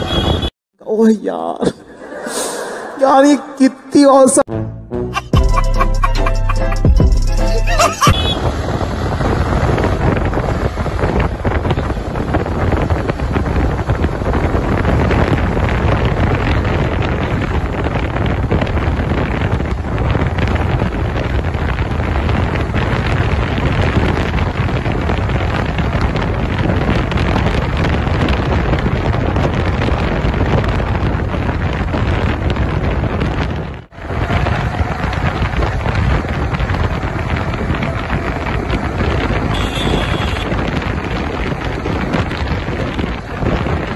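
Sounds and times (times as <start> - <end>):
wind buffeting microphone: 8.0 - 43.9
motorcycle engine running: 34.1 - 43.4.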